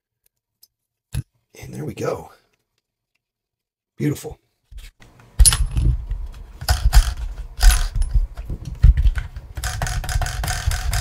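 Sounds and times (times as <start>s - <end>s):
servo clicks and clatters: 6.6s - 11.0s.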